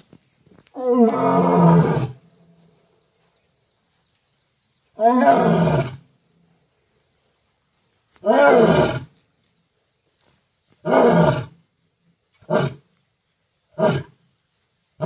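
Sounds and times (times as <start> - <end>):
lion roaring: 0.7 - 2.2, 5.0 - 6.0.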